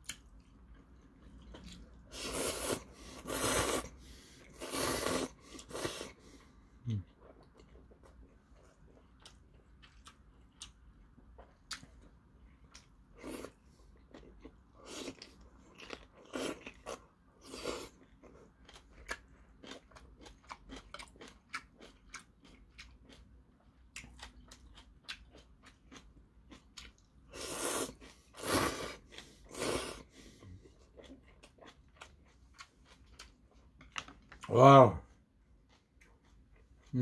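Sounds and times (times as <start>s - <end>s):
wet chewing with mouth clicks: 0.0s - 34.5s, 35.1s - 37.0s
noodles slurped: 2.1s - 6.2s.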